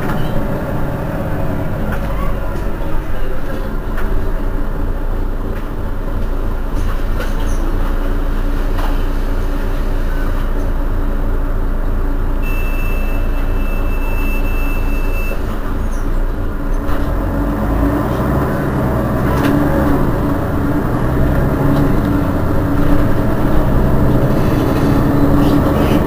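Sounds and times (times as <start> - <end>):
bus engine idling: 0.0 - 26.0
steady high beep: 12.4 - 15.4.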